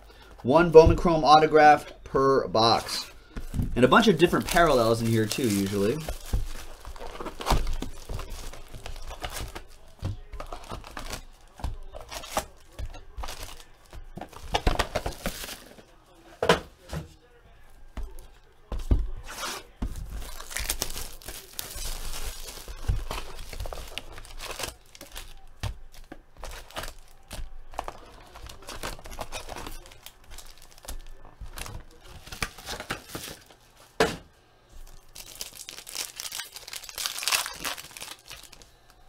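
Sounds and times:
packaging being torn and crinkled: 0:03.8 - 0:15.7, 0:20.1 - 0:33.6, 0:34.9 - 0:38.7.

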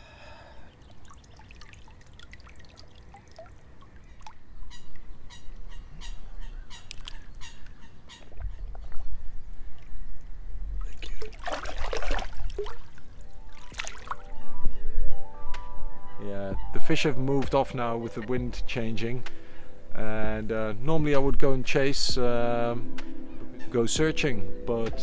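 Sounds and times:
water dripping and splashing: 0:00.7 - 0:05.8, 0:06.8 - 0:14.3
fish splashing into water: 0:00.8 - 0:04.4, 0:10.8 - 0:14.3.

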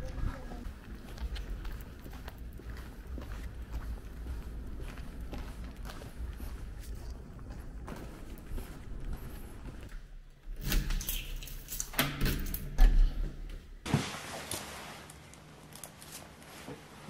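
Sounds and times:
door being unlocked and opened: 0:10.5 - 0:13.2.

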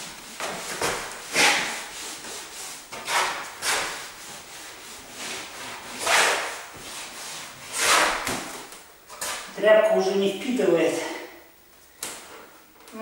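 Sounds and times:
rag scrubbing wooden boards: 0:00.0 - 0:08.7.

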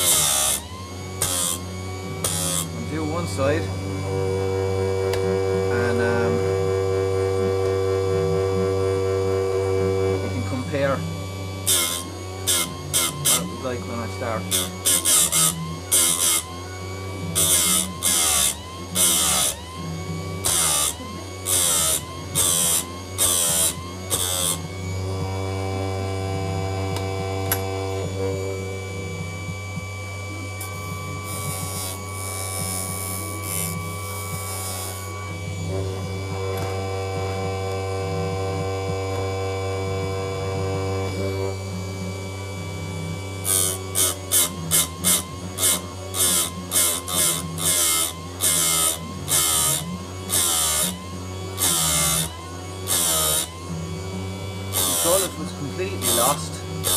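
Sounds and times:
grinding wheel on chain teeth: 0:00.0 - 0:04.1, 0:11.6 - 0:25.2, 0:43.3 - 0:56.9
grinder motor humming: 0:00.0 - 0:56.9.

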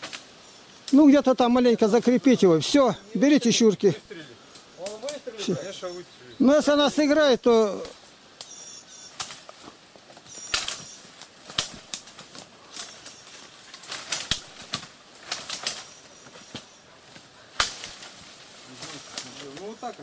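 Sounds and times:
branches cracking and snapping: 0:00.0 - 0:02.9, 0:04.4 - 0:05.7, 0:06.6 - 0:20.0
leaves rustling: 0:00.0 - 0:20.0.

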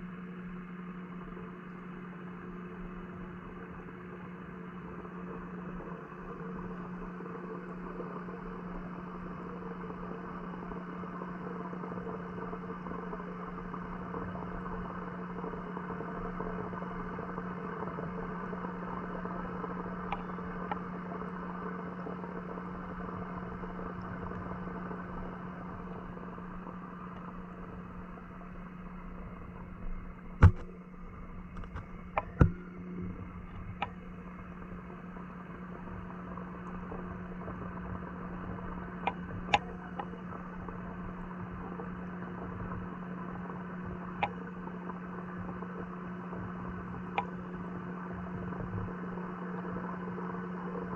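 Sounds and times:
low underwater hum: 0:00.0 - 0:50.9
underwater clicks and knocks: 0:30.1 - 0:30.8, 0:31.5 - 0:47.4.

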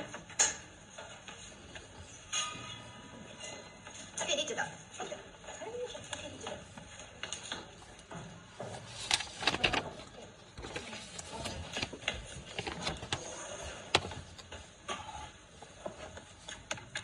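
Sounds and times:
objects clicking and knocking: 0:06.0 - 0:15.0.

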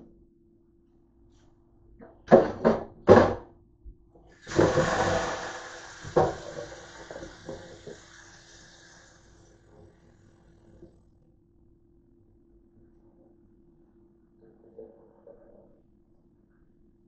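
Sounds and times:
faucet water running into sink: 0:04.3 - 0:10.0.

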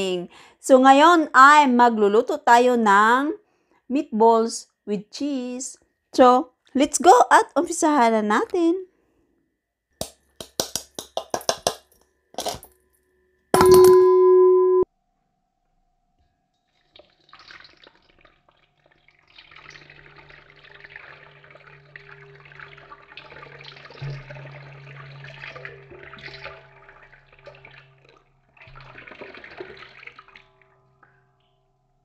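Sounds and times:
tap water running into sink: 0:10.0 - 0:12.7, 0:17.0 - 0:30.6
low hum: 0:13.6 - 0:14.9, 0:21.0 - 0:28.2
short electronic tone: 0:13.6 - 0:14.9.

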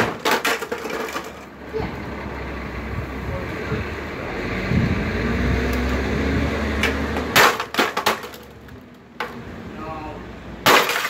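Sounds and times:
sledgehammer hitting plastic: 0:00.0 - 0:01.0, 0:10.6 - 0:11.0
steady rumble: 0:00.0 - 0:10.7.

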